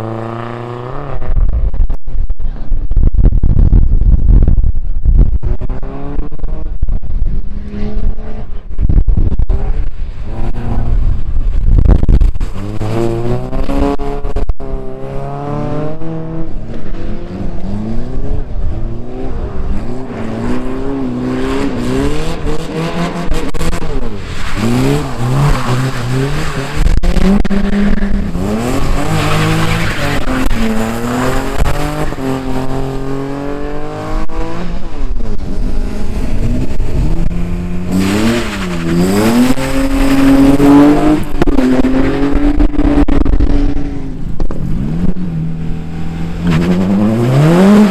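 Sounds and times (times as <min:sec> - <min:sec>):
race car engines revving: 0:05.4 - 0:47.9
tyres skidding and squealing: 0:19.5 - 0:33.1, 0:36.3 - 0:42.9.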